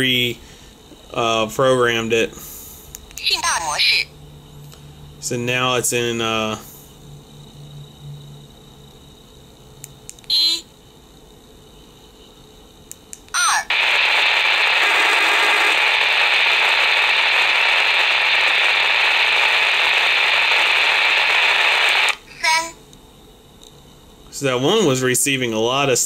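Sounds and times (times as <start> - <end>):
radio static hiss: 2.4 - 4.0, 13.4 - 22.6.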